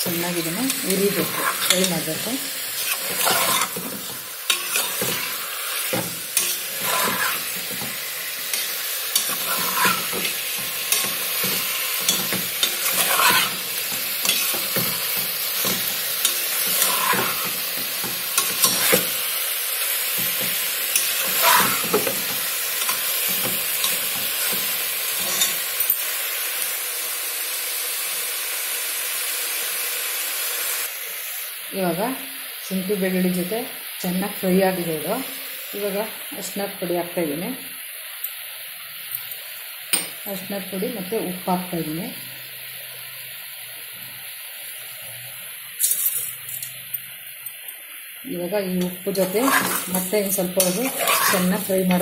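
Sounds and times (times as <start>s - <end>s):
chicken sizzling in a pot: 0.0s - 52.0s
ladle scraping and knocking pot: 49.3s - 52.0s.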